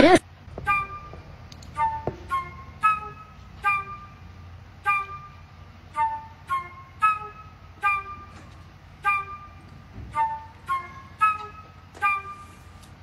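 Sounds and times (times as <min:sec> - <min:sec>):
light tune of clipped notes: 0:06.0 - 0:13.0.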